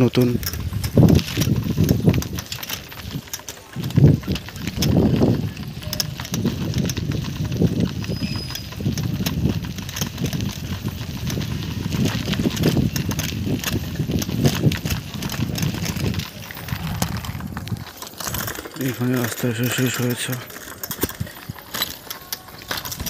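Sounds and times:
wind rumble on microphone: 0.0 - 18.7
bicycle rattling over gravel: 0.0 - 23.0.

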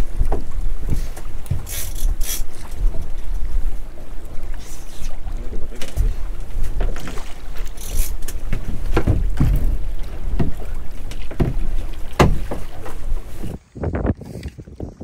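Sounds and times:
wind buffeting microphone: 0.0 - 15.0
knocks and thumps on boat hull: 8.2 - 13.2.

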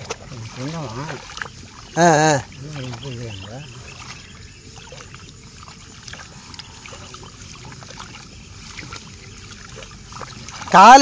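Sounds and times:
hands splashing in muddy water: 0.0 - 11.0.

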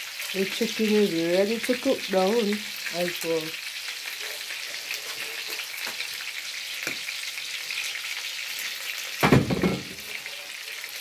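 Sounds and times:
chicken sizzling in a pan: 0.0 - 11.0
loud thump: 9.2 - 10.0.

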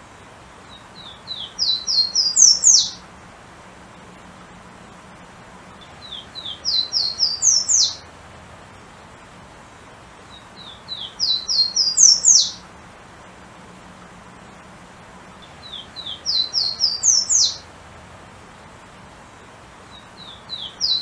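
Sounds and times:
warbler singing: 0.6 - 3.1, 5.7 - 8.2, 9.7 - 12.7, 15.3 - 17.7, 19.4 - 21.0.

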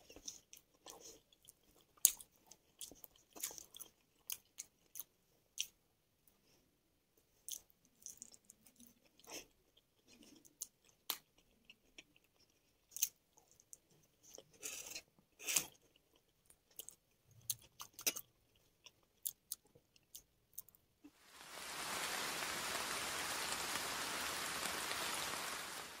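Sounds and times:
close chewing and crunching: 0.0 - 5.8, 7.3 - 20.9
steady hiss: 21.1 - 26.0.

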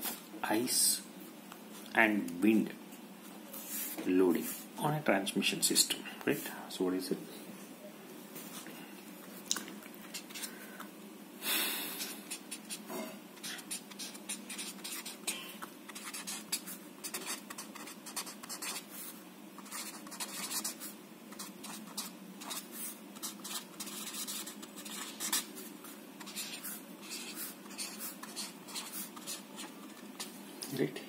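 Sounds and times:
marker scratching on paper: 12.0 - 12.8, 13.4 - 30.4.

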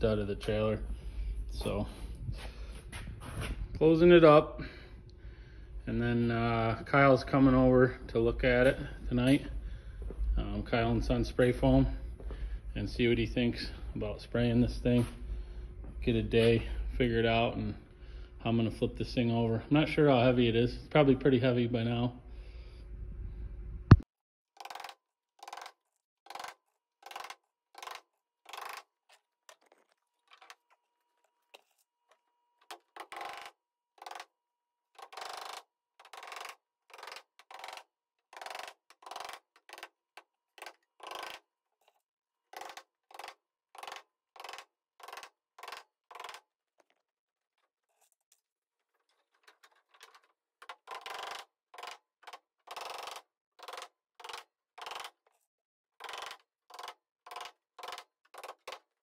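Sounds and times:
hammer striking nails into wood: 50.7 - 55.2, 56.0 - 58.8.

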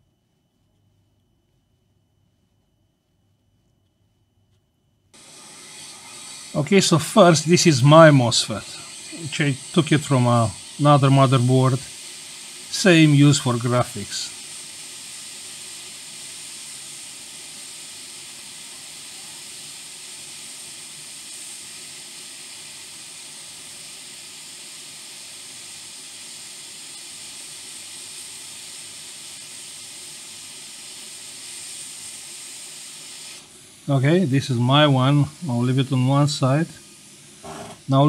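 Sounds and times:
hot air blower hissing: 5.1 - 38.0.

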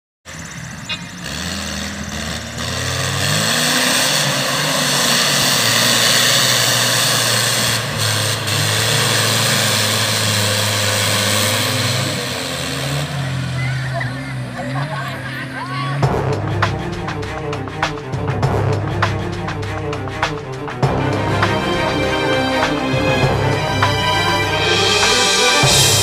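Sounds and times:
buggy engine revving: 0.3 - 26.0.

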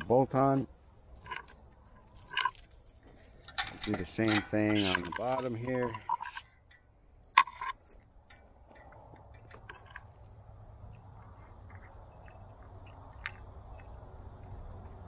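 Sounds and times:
small metallic clicks and clinks: 1.2 - 10.5, 12.8 - 13.9.

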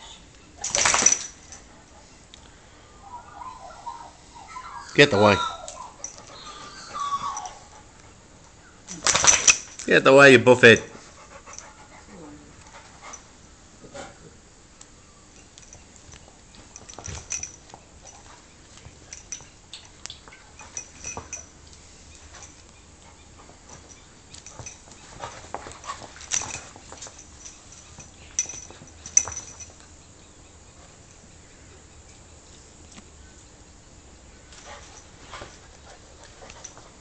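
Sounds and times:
animals tussling knocks and clicks: 8.9 - 9.9.

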